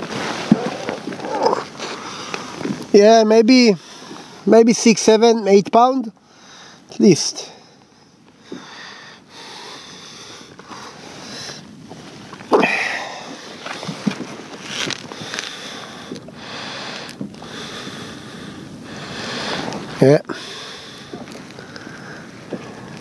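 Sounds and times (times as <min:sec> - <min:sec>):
close rustling and handling: 0:00.0 - 0:03.0, 0:10.5 - 0:17.4.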